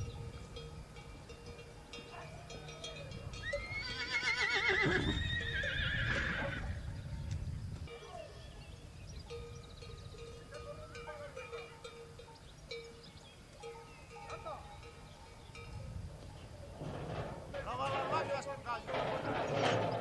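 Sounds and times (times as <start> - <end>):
horse whinnying: 3.4 - 6.8.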